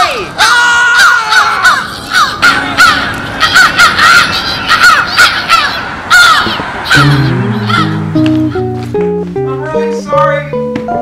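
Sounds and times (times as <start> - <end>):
flock of birds calling: 0.4 - 8.0.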